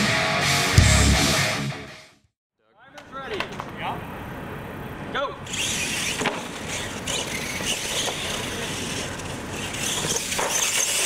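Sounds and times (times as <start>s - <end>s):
toy trucks motors and tyres: 5.4s - 11.0s.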